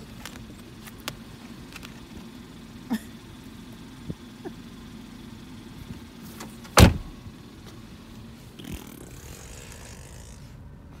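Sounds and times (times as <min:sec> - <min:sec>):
low hum in a car: 0:00.0 - 0:11.0
loud thump: 0:06.8 - 0:07.2.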